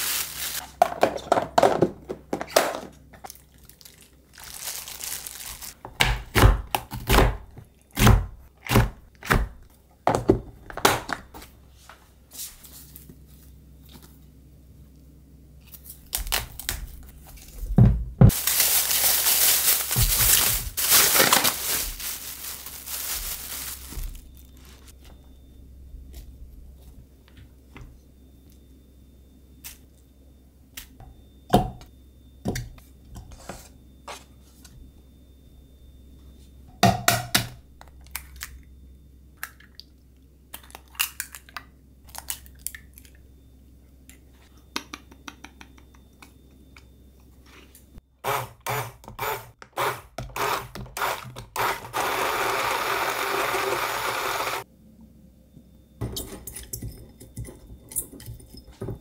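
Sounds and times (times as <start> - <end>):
small electric blender: 48.3 - 54.6.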